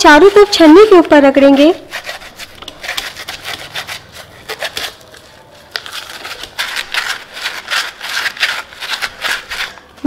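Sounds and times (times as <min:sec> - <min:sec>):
scouring pad scrubbing mesh strainer: 0:00.0 - 0:05.1.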